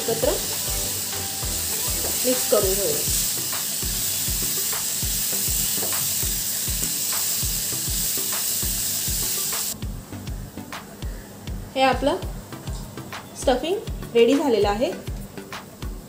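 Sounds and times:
food sizzling in a pan: 0:00.0 - 0:09.8
soft background music beat: 0:00.0 - 0:16.0.

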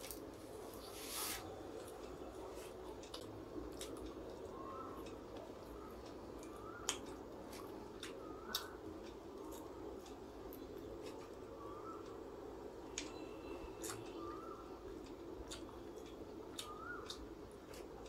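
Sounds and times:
crunchy chewing: 0:00.0 - 0:12.2, 0:12.9 - 0:18.0.

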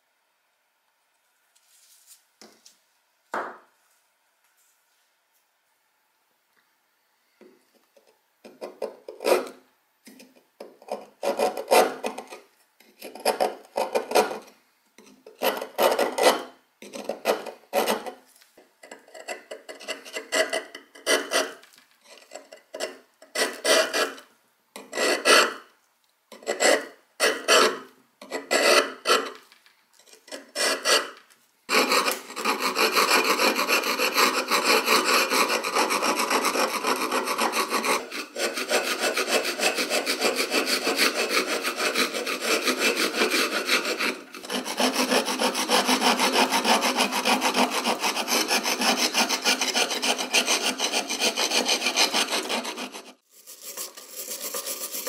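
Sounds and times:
chisel scraping rust off metal: 0:18.8 - 0:24.2, 0:26.3 - 0:55.0.

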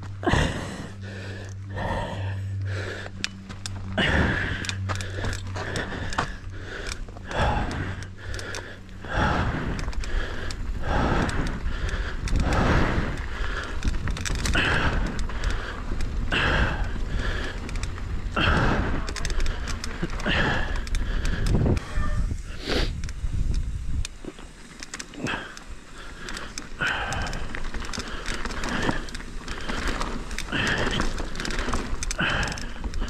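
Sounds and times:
mountain bike clicking and rattling: 0:00.0 - 0:33.0
tyre and wind rumble: 0:00.0 - 0:33.0
person breathing hard: 0:00.2 - 0:23.4, 0:25.0 - 0:33.0.

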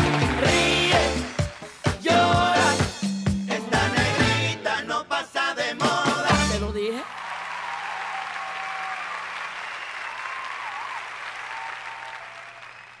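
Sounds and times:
audience applauding: 0:00.0 - 0:02.4, 0:07.0 - 0:13.0
live song sung note: 0:00.0 - 0:06.9.

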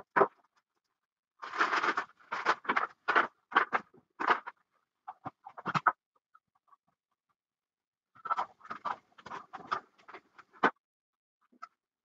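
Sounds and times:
plastic and paper crinkling: 0:01.4 - 0:04.5.

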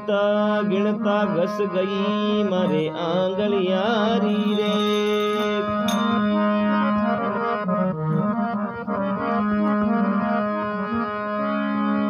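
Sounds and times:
electronic keyboard melody: 0:00.0 - 0:12.0
steady drone: 0:04.3 - 0:09.6.

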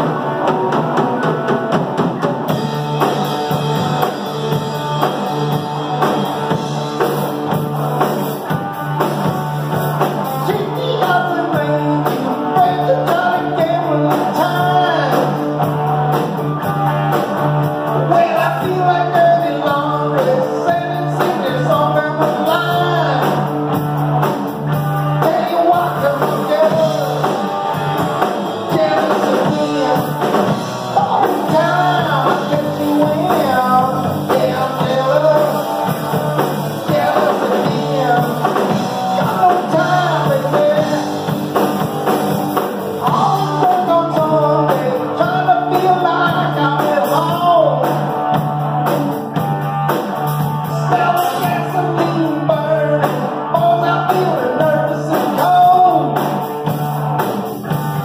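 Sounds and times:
man singing lead vocals: 0:00.0 - 0:49.0, 0:50.3 - 0:56.7
rock band playing live: 0:00.0 - 0:58.0.

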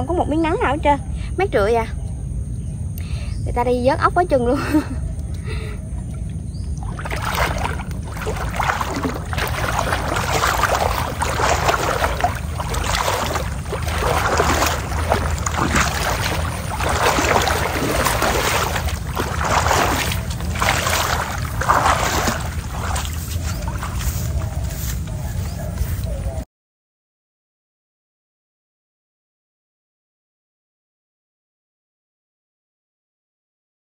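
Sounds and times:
wading through water splashing: 0:06.7 - 0:26.4.

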